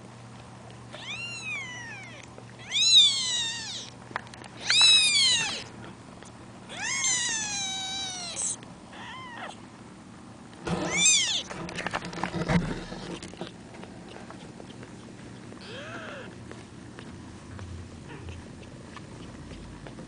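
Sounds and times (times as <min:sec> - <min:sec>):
kittens mewing: 0:00.9 - 0:04.0, 0:04.6 - 0:05.9, 0:06.7 - 0:09.6, 0:10.7 - 0:11.5, 0:15.5 - 0:16.4, 0:18.0 - 0:19.6.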